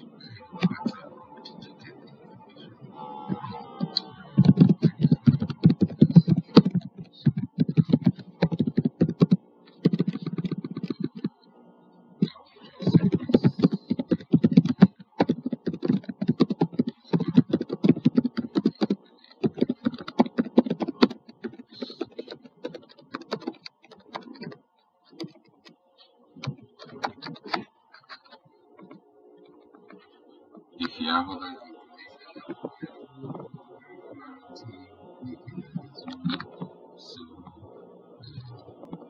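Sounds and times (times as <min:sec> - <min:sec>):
typing on computer keyboard: 0:03.3 - 0:11.4, 0:12.2 - 0:25.8, 0:26.4 - 0:28.4.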